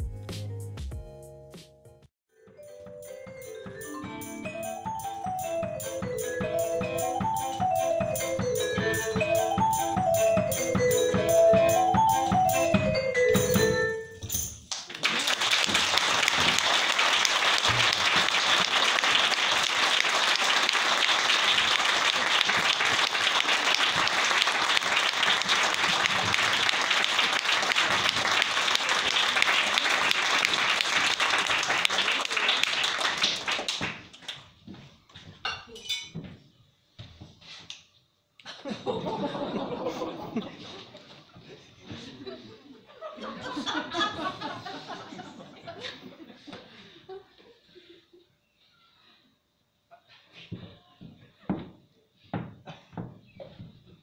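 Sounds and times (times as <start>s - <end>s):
music with repeating melody: 0.0s - 14.5s
audience applause: 14.7s - 34.1s.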